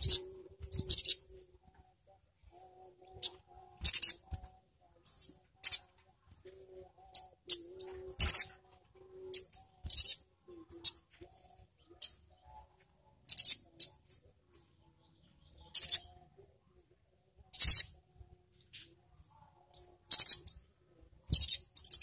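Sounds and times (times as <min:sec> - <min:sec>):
bird chirping: 0:00.0 - 0:22.0.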